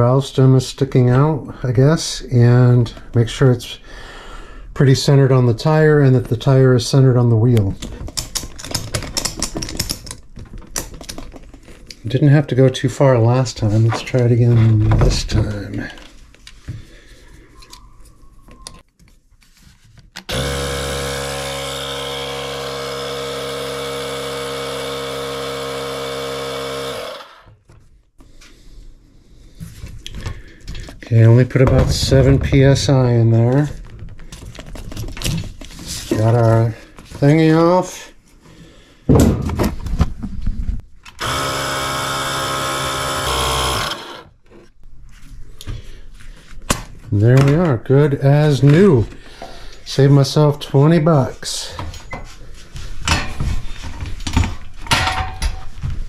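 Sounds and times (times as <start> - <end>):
handling knocks and rattles: 7.6 - 12.0, 29.7 - 37.3, 52.9 - 56.0
tire inflator compressor running: 20.3 - 27.6, 41.2 - 44.4.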